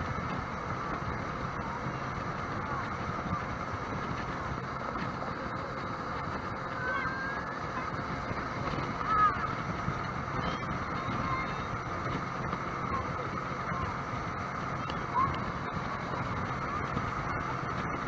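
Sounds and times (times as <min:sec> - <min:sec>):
jet boat engine: 0:00.0 - 0:18.0
water noise: 0:00.0 - 0:18.0
wind noise: 0:00.0 - 0:18.0.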